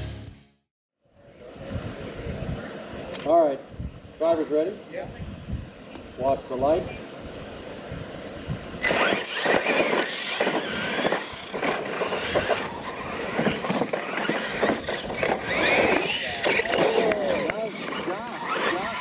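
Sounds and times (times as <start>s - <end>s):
electric motors whining: 8.8s - 19.0s
toy trucks knocking on ramps: 13.3s - 17.2s.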